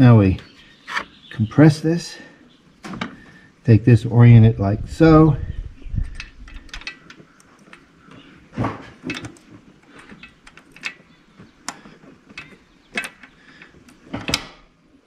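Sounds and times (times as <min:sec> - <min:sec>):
metallic clicks and taps: 0:09.0 - 0:14.5.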